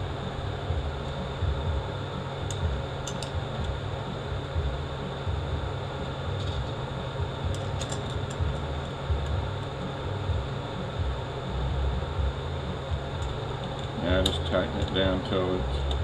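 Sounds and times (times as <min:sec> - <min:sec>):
machinery droning hum: 0:00.0 - 0:16.0
faint clicks of metal parts: 0:02.4 - 0:03.8, 0:07.5 - 0:09.4, 0:13.2 - 0:15.0.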